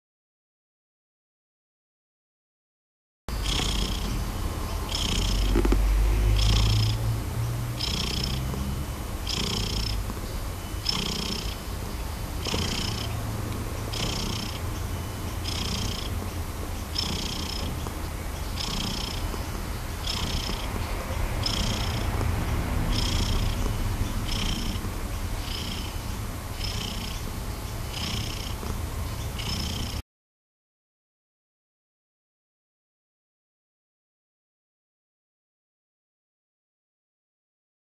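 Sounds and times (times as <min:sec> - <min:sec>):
cat purring: 0:03.3 - 0:30.0.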